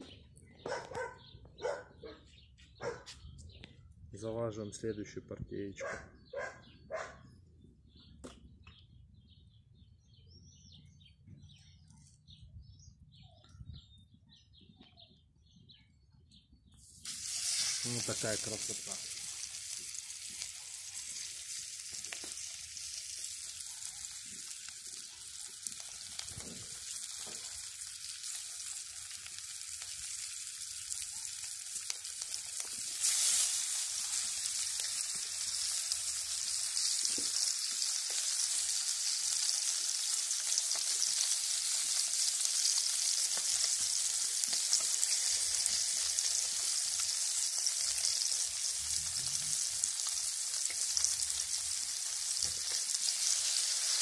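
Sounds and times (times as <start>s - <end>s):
fish sizzling in hot oil: 16.8s - 54.0s.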